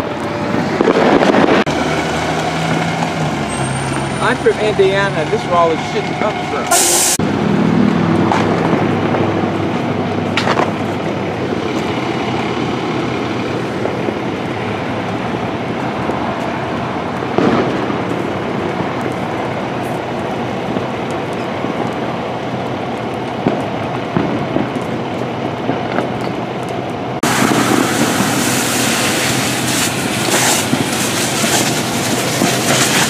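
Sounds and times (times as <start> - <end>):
fire engine running: 0.0 - 33.0
sharp crack: 8.2 - 11.0, 17.1 - 33.0.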